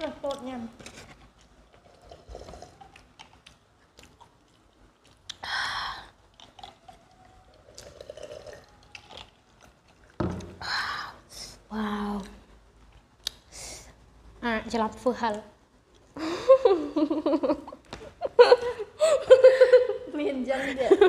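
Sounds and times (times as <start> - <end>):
people chewing: 0.3 - 10.6.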